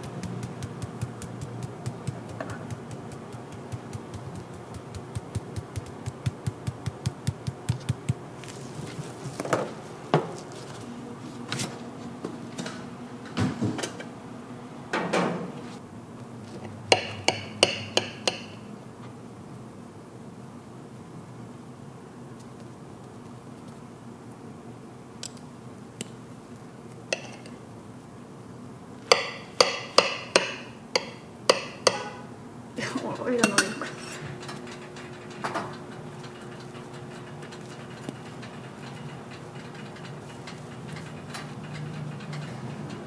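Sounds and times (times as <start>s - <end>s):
rapid utensil clicking: 0.0s - 8.3s
utensils knocking on cookware: 0.0s - 8.3s, 16.9s - 18.6s, 29.1s - 32.3s, 33.2s - 43.0s.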